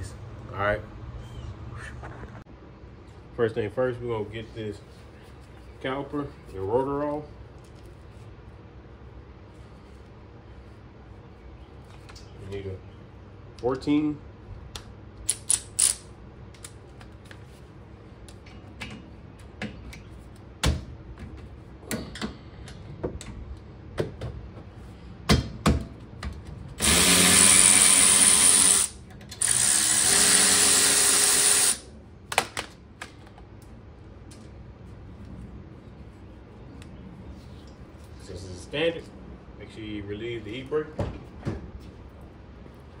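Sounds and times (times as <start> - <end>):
power tool running: 26.8 - 31.9.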